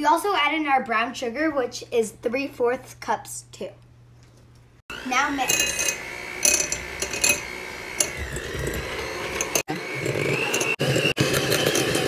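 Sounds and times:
electric hand mixer whining: 0:04.9 - 0:12.0.

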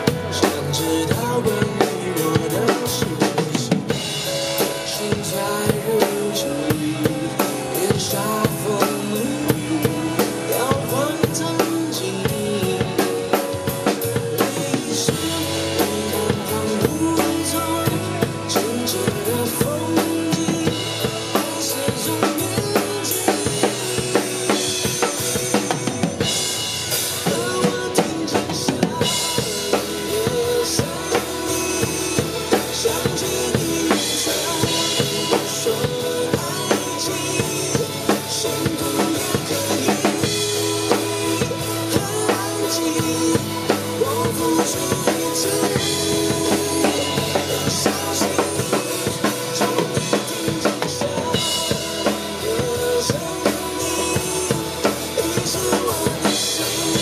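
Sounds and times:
acoustic drum kit playing: 0:00.0 - 0:57.0
pop ballad backing track: 0:00.0 - 0:57.0.

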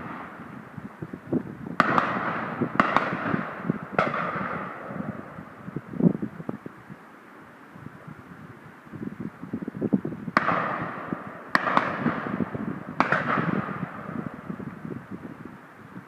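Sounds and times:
low background noise: 0:00.0 - 0:16.0
shotgun shots with echo: 0:01.8 - 0:05.0, 0:10.4 - 0:14.0.

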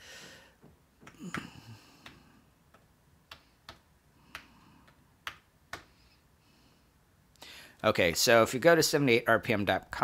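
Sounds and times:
fingertip taps on touchscreen: 0:01.0 - 0:06.0.

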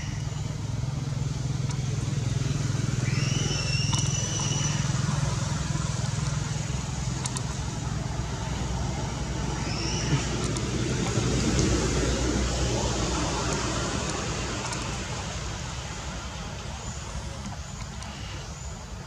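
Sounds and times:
vehicle engine humming: 0:00.0 - 0:19.0
monkey call: 0:03.0 - 0:05.5, 0:09.5 - 0:10.6.

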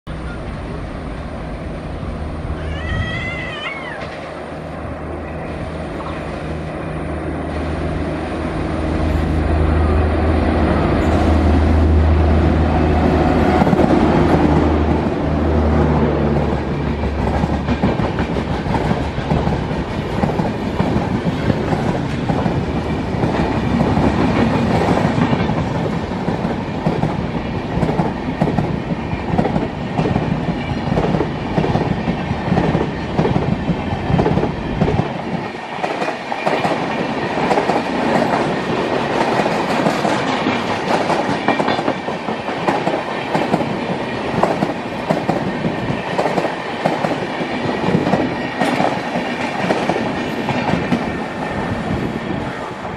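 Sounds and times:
electric locomotive humming: 0:00.1 - 0:52.9
train wheels clacking on rail: 0:10.8 - 0:52.9.

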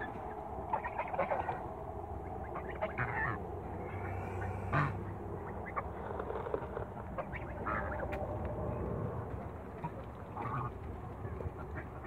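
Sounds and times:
geese calling: 0:00.0 - 0:08.4, 0:09.6 - 0:12.0.

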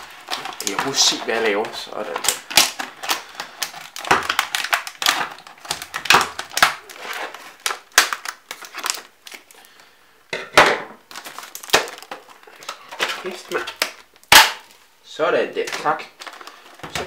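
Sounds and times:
scissors cutting plastic packaging: 0:00.0 - 0:09.5
plastic packaging crackling: 0:00.0 - 0:09.9, 0:11.0 - 0:17.0.

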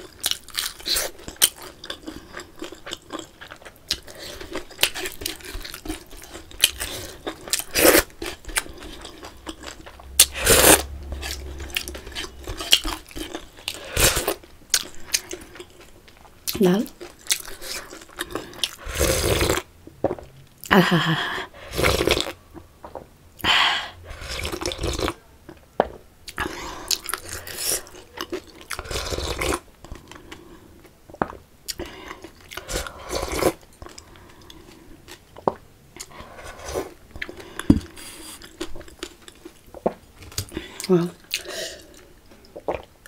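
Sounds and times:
chewing and swallowing: 0:00.0 - 0:18.8
slurping soup from a bowl: 0:17.6 - 0:19.6.

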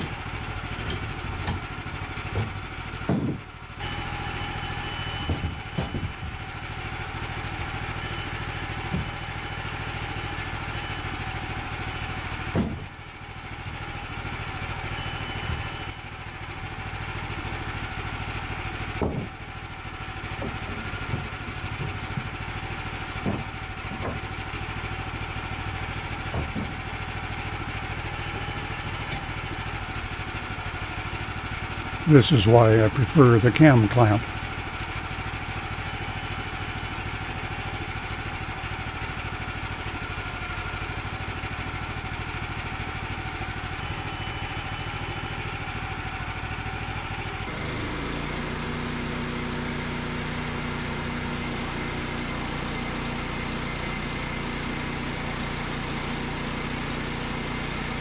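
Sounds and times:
knocks of wood and metal: 0:00.0 - 0:06.4, 0:08.7 - 0:09.4, 0:12.4 - 0:13.0, 0:18.8 - 0:19.6, 0:20.3 - 0:24.6, 0:26.1 - 0:27.6
gas engine idling: 0:29.3 - 0:40.1.

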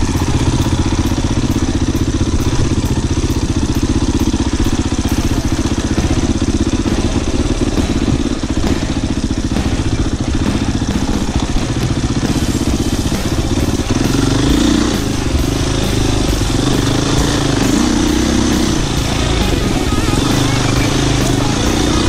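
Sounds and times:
motorcycle engine revving: 0:00.0 - 0:22.0.

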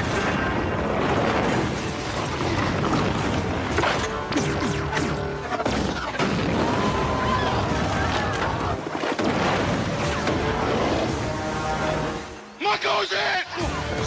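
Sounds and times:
explosions: 0:00.0 - 0:11.2
action film music: 0:00.0 - 0:14.0.

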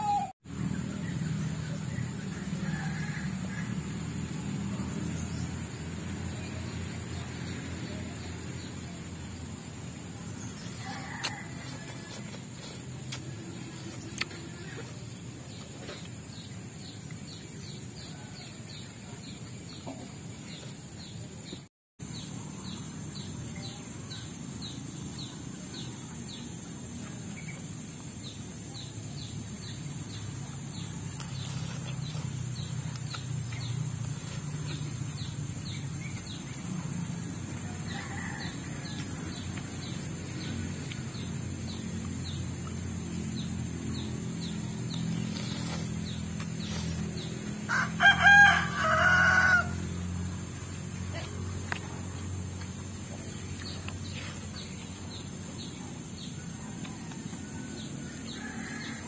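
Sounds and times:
rooster crowing: 0:02.4 - 0:04.2, 0:10.6 - 0:12.4, 0:37.6 - 0:39.4, 0:47.2 - 0:50.1, 0:57.6 - 0:59.0.

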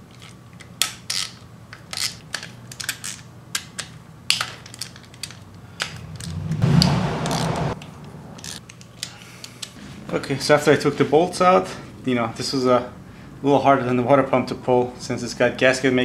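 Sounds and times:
hand ratchet clicking: 0:00.8 - 0:07.8, 0:08.4 - 0:09.8.

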